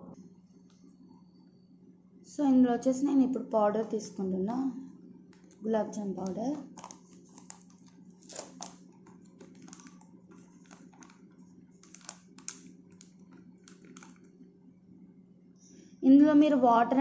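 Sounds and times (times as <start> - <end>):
steady low hum: 0.0 - 17.0
foil packet crinkling: 5.3 - 14.4.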